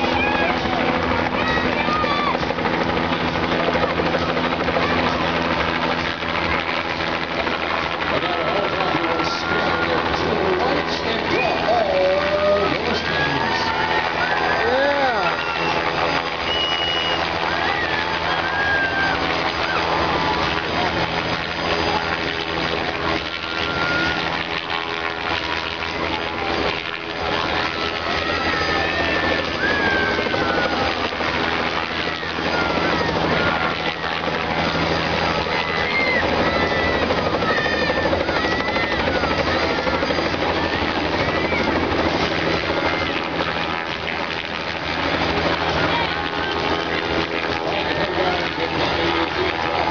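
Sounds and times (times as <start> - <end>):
helicopter hovering: 0.0 - 49.9.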